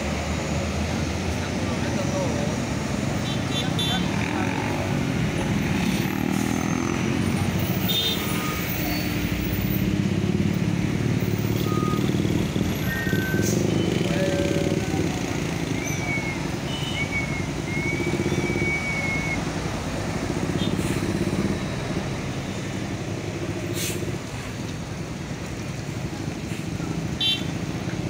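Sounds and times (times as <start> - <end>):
diesel trucks labouring uphill: 0.0 - 28.0.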